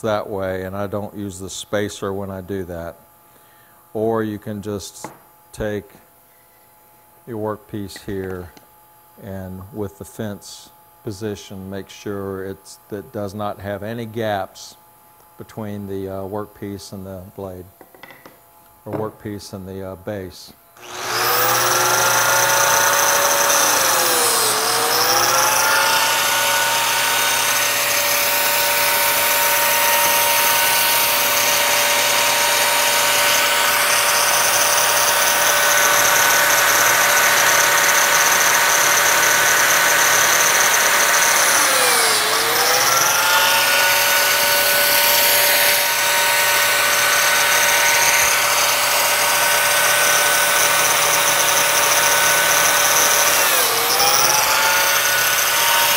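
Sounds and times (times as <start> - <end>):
biscuit joiner motor whine: 20.8 - 55.9.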